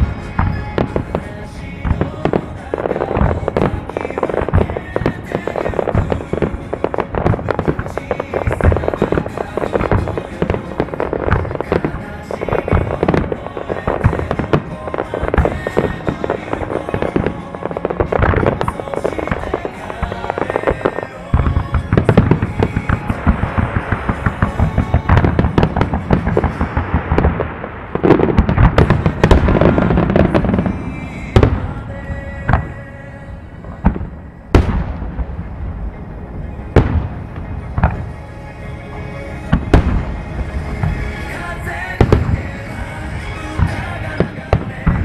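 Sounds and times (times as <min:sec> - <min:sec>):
fireworks bursting and crackling: 0:00.0 - 0:45.0
music over loudspeakers: 0:00.0 - 0:45.0.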